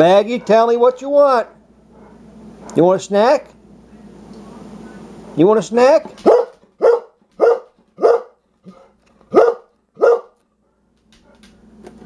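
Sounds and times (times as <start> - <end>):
dog barking: 6.2 - 10.4.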